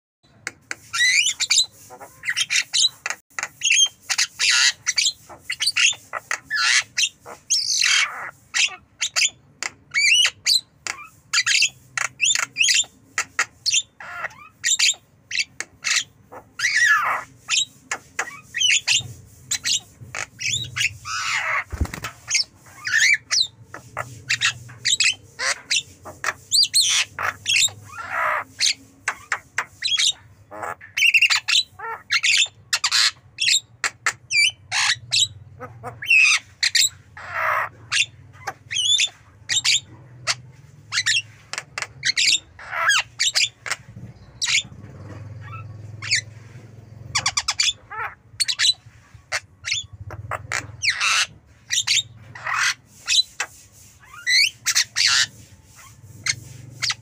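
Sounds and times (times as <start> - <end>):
myna squawking and whistling: 0.8 - 46.3, 47.0 - 57.0.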